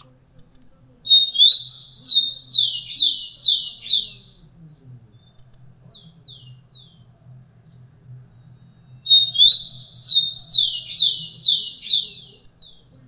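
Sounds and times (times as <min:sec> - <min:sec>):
sparrow singing whistled notes: 0:01.1 - 0:04.3, 0:08.4 - 0:12.8.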